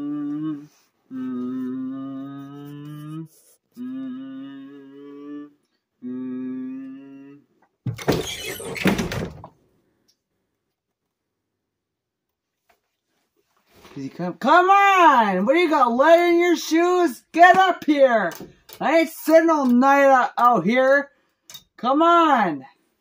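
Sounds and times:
person humming: 0:00.0 - 0:07.5.

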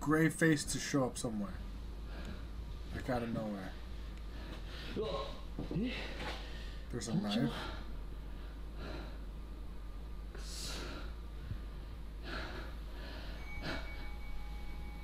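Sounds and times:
low steady hum: 0:00.0 - 0:15.0
faint bell tone ringing: 0:13.3 - 0:15.0.

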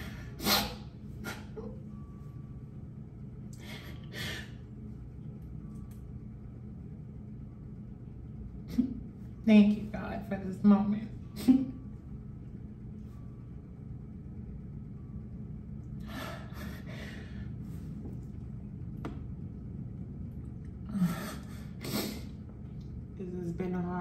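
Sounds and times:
low room hum: 0:00.0 - 0:24.0
woman breathing tearfully: 0:03.5 - 0:04.7, 0:16.0 - 0:17.7.

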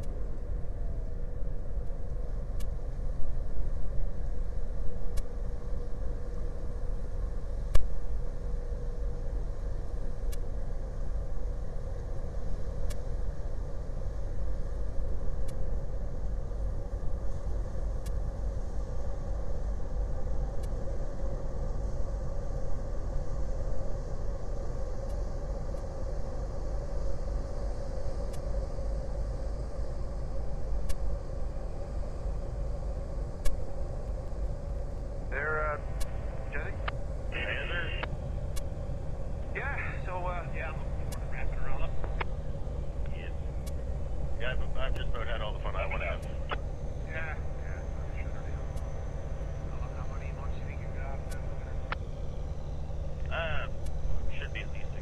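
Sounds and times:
faint steady hum: 0:00.0 - 0:55.0
steady low rumble: 0:00.0 - 0:55.0
light clicks: 0:12.8 - 0:13.0.

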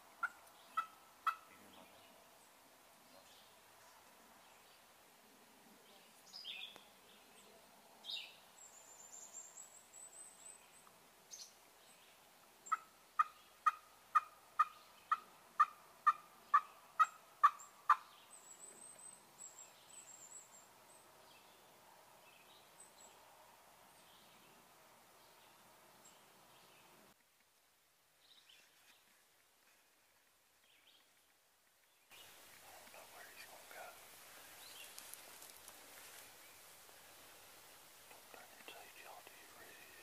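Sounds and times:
turkey yelping: 0:00.2 - 0:01.5, 0:12.7 - 0:18.0.

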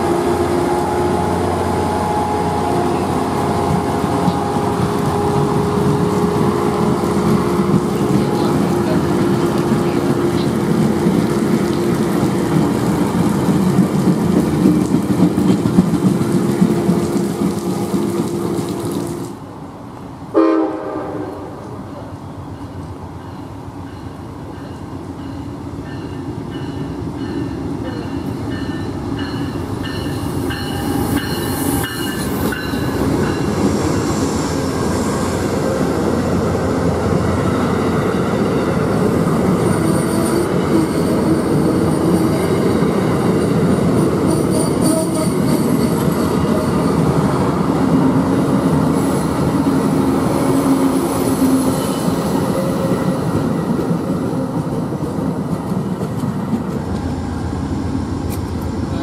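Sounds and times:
train wheels rumbling on rails: 0:00.0 - 0:20.2, 0:20.8 - 0:59.0
crossing bell ringing: 0:22.4 - 0:33.8, 0:39.6 - 0:47.2.

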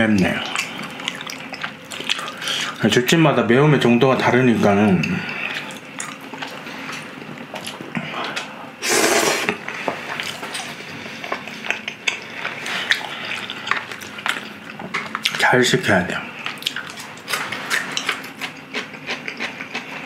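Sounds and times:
chewing: 0:00.1 - 0:02.8, 0:05.0 - 0:08.6, 0:09.4 - 0:15.4, 0:16.4 - 0:20.0
loud noodle slurp: 0:08.8 - 0:09.6.

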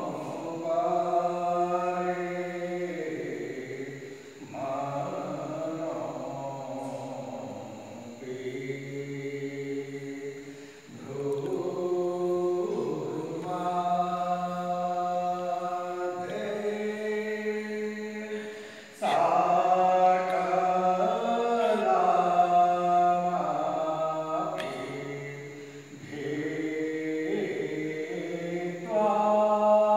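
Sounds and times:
devotional chant in long notes: 0:00.0 - 0:29.9.

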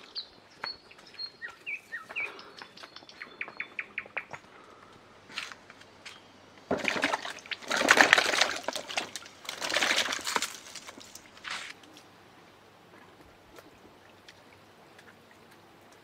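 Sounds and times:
tomatoes splashing into water: 0:06.7 - 0:11.4.

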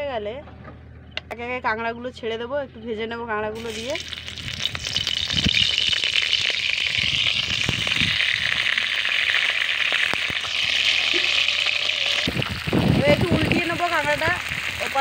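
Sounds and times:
crab frying in hot oil: 0:03.6 - 0:15.0.

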